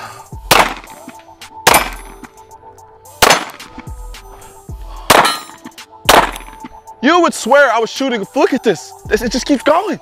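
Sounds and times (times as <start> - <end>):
background music: 0.0 - 10.0
pistol shots: 0.5 - 2.3, 3.2 - 3.7, 5.1 - 6.6.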